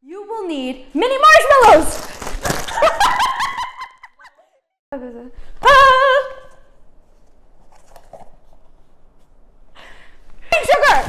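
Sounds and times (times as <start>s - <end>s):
woman laughing loudly: 2.6s - 4.6s.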